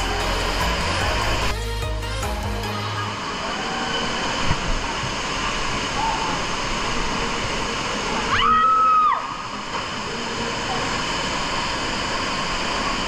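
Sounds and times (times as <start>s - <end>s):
background music: 0.0s - 4.4s
falling water rushing: 2.8s - 13.0s.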